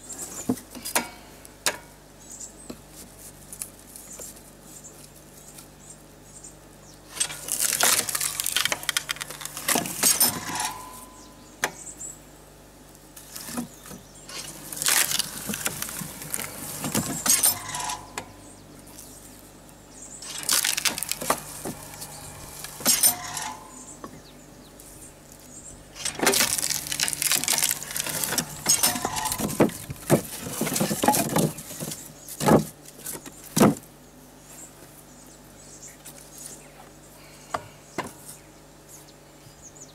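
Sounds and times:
wood cracking and splintering: 7.2 - 10.8, 14.3 - 18.0, 20.2 - 23.6, 26.0 - 32.7
wood pieces clattering: 7.2 - 11.0, 20.2 - 23.8, 26.0 - 32.6
short creaks: 20.2 - 24.1, 25.9 - 31.1.

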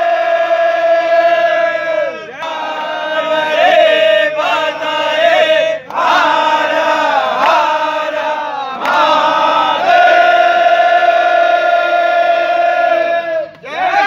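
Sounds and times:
men chanting in unison: 0.0 - 14.0.

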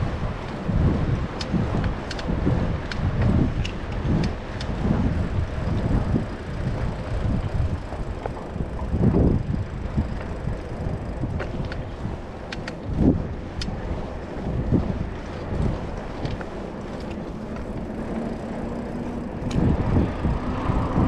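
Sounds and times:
wind buffeting microphone: 0.0 - 21.0
faint ticks: 1.4 - 4.8, 13.6 - 13.8.

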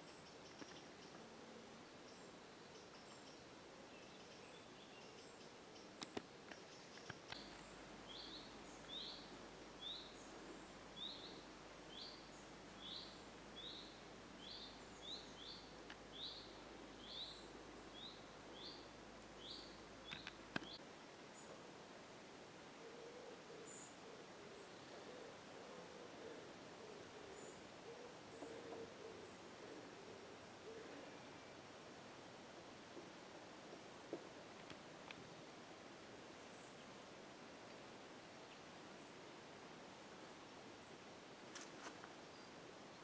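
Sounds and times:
small bird calling: 22.8 - 31.4.

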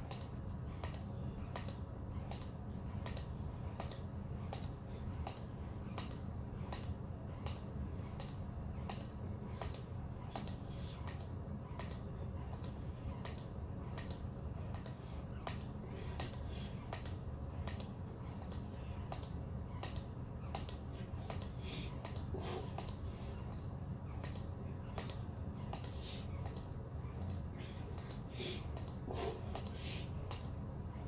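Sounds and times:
steady low hum: 0.0 - 31.0
counter clicks with high beeps: 0.1 - 5.4, 6.0 - 7.6, 10.4 - 27.4.

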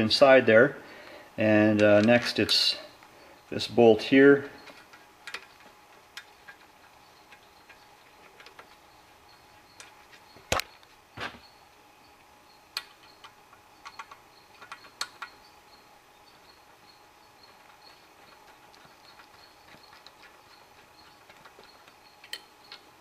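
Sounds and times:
metal clicks and taps: 4.6 - 8.8, 12.7 - 15.4, 17.5 - 22.9.

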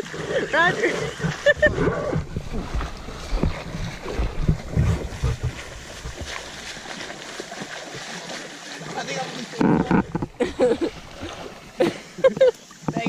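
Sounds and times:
water splashing from swimming: 0.0 - 13.0
low thumps: 1.3 - 7.0, 9.6 - 11.6.

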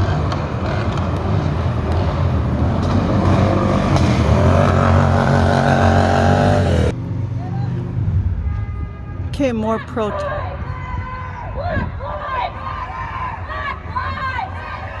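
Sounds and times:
vehicle engine revving: 0.0 - 7.3.

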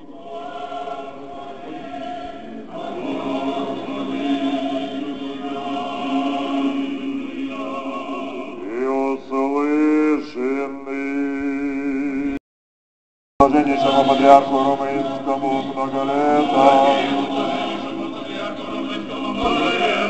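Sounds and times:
choir singing a slow chant: 0.0 - 12.4, 13.4 - 20.0.

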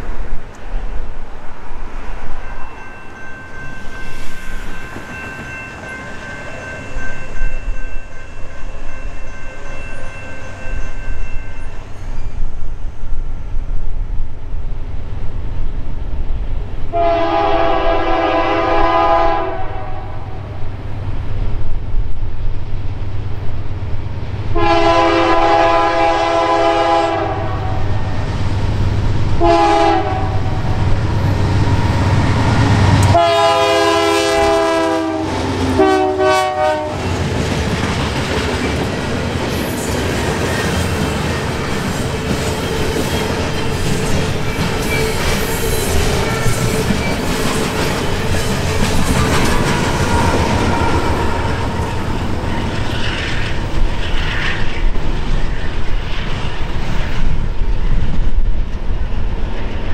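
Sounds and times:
train low rumble: 0.0 - 59.9
locomotive air horn blasts: 16.9 - 20.4, 24.6 - 28.0, 29.4 - 30.7, 33.0 - 37.1
train wheels clattering on rail: 27.9 - 34.6, 36.8 - 59.9.

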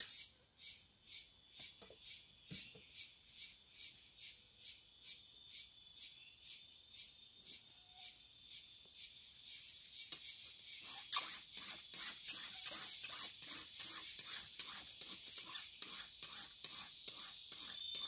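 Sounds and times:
hand tool scraping dry soil: 10.0 - 18.0.

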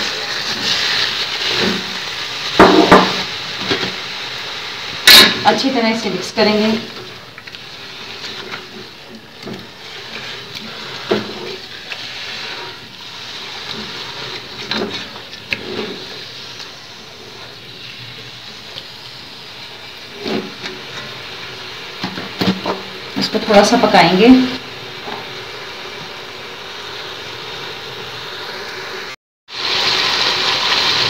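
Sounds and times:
chicken sizzling in oil: 0.0 - 31.0
spatula scraping a pot: 7.4 - 18.7, 20.1 - 21.2.

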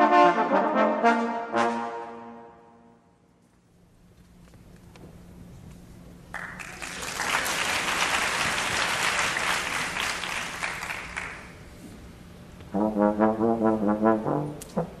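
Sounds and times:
audience applauding: 6.3 - 11.7.

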